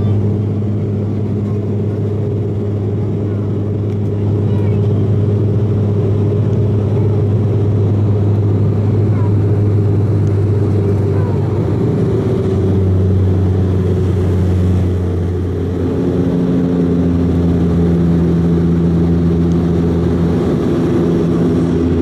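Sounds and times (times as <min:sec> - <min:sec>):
turboprop cabin drone: 0:00.0 - 0:22.0.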